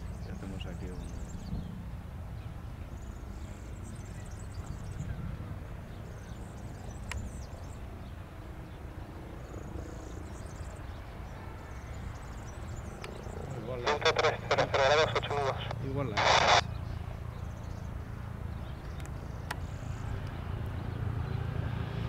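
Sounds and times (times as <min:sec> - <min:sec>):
small birds chirping: 0:00.0 - 0:22.0
wind rumble on microphone: 0:01.0 - 0:13.6.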